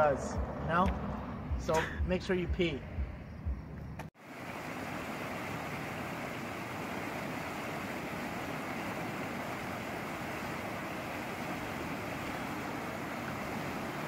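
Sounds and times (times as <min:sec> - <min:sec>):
quiet outdoor background: 0:00.0 - 0:14.0
rushing river whitewater: 0:04.2 - 0:14.0.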